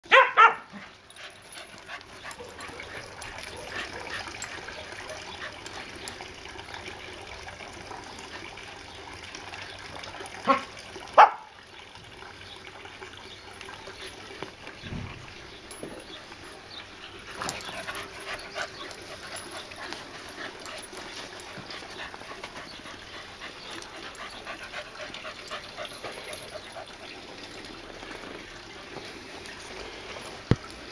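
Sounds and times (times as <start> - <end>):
dogs barking: 0.1 - 0.7, 2.2 - 5.7, 10.4 - 11.5
dogs playing: 0.4 - 6.6, 13.5 - 30.8.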